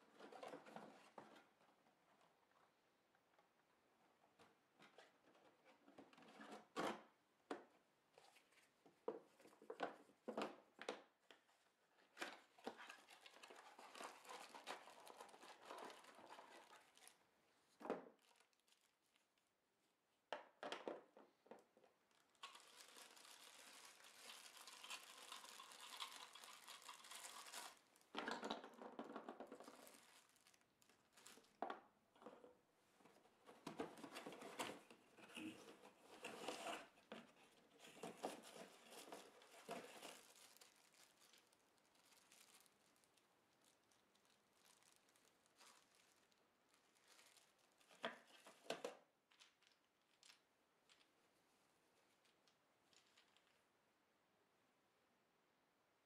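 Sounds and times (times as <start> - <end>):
plastic bag crinkling: 18.2 - 19.2, 22.1 - 28.2, 29.6 - 31.6, 38.0 - 48.3, 52.1 - 53.6.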